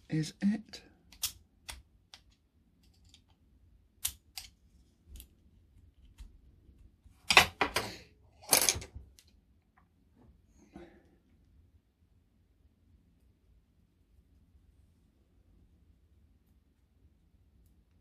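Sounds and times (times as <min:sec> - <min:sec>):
model parts and tools clicking: 0:01.1 - 0:03.4, 0:04.0 - 0:05.3.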